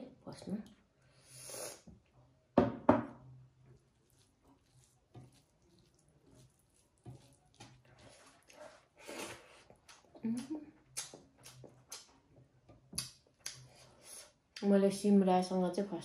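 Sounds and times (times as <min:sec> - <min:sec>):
glass bowl knocking on wooden table: 0:02.6 - 0:03.2
fingers squishing rice: 0:03.7 - 0:10.2.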